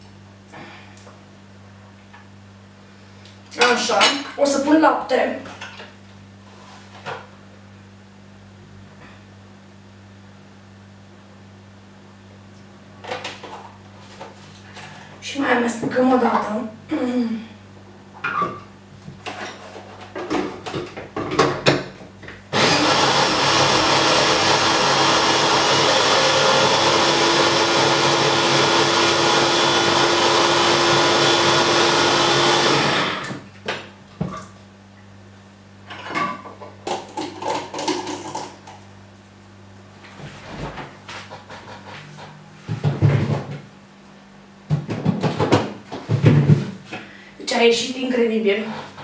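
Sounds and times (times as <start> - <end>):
electric blender whirring: 22.5 - 33.5.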